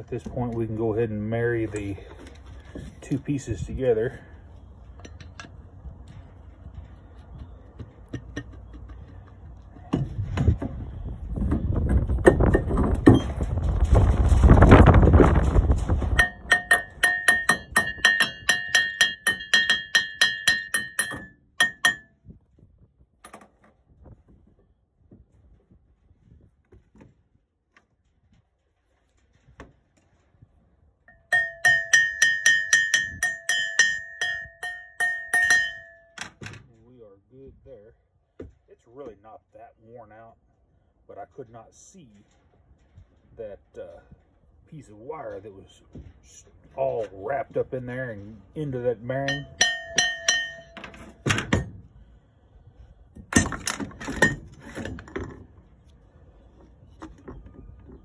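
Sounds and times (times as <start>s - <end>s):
wind rumble on microphone: 2.6s - 18.9s, 22.1s - 28.6s, 29.2s - 31.0s
hammer tapping steel shaft: 16.2s - 22.1s, 31.1s - 36.3s, 49.2s - 51.2s.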